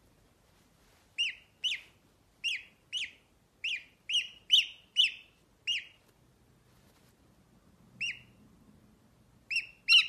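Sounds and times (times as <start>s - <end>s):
gosling peeping: 1.1s - 6.1s, 7.9s - 8.4s, 9.4s - 10.0s.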